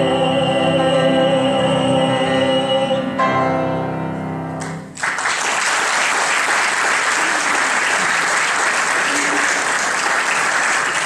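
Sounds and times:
tenor singing: 0:00.0 - 0:03.6
piano chord: 0:00.0 - 0:04.9
audience applauding: 0:04.6 - 0:11.0.

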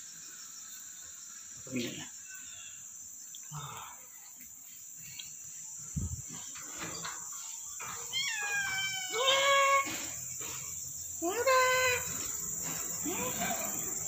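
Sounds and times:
cat meowing: 0:08.1 - 0:09.9.

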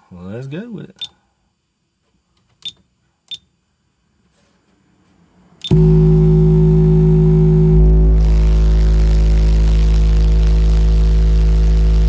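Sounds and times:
loud distorted bass tone: 0:05.7 - 0:12.0.

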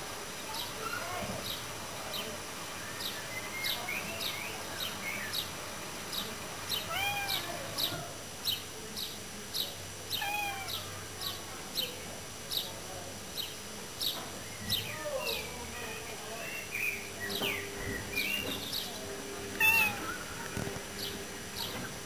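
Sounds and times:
cat meowing: 0:06.9 - 0:07.6, 0:10.2 - 0:10.8, 0:19.6 - 0:20.1
bird chirping: 0:13.4 - 0:19.0.

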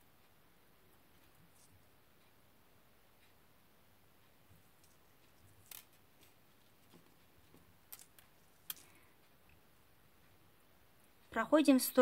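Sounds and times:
faint clicks of beads: 0:04.6 - 0:09.6.

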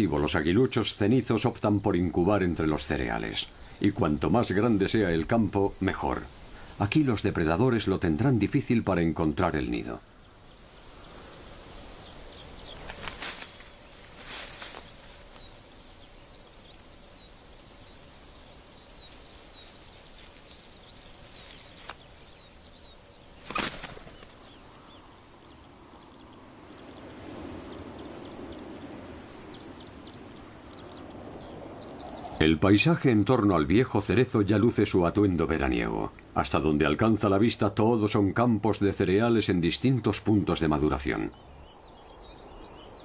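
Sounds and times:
wind hiss: 0:00.0 - 0:33.2
faint songbird chirps: 0:00.0 - 0:43.0.

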